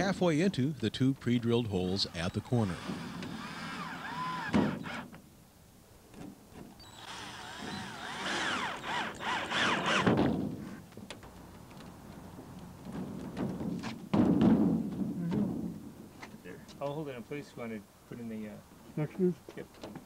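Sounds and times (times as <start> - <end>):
cordless drill motor whine: 2.6 - 5.0, 6.8 - 10.1
knocks: 12.9 - 15.8.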